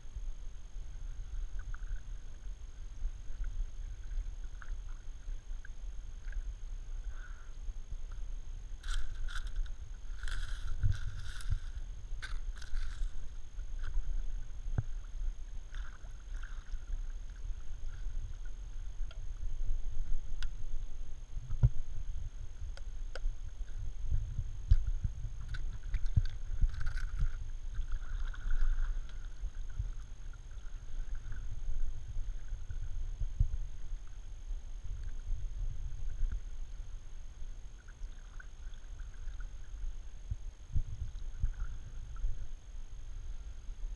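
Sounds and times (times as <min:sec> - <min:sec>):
steady low rumble: 0:00.0 - 0:43.9
paddle splashing water: 0:08.8 - 0:18.7, 0:24.7 - 0:32.7.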